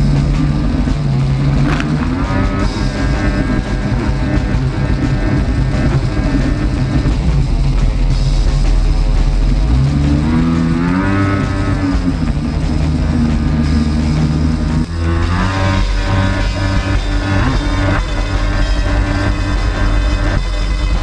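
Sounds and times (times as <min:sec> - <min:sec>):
jet ski engine under throttle: 0:00.0 - 0:21.0.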